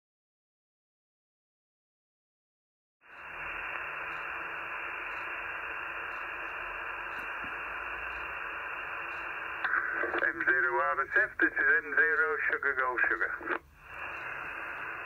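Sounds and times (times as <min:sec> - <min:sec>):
radio receiver hiss: 0:03.0 - 0:15.0.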